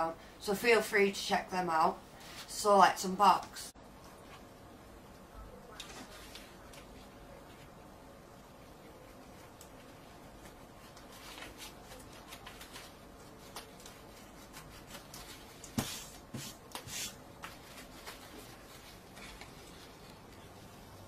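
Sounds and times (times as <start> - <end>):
envelope crinkling and rustling: 9.4 - 15.8.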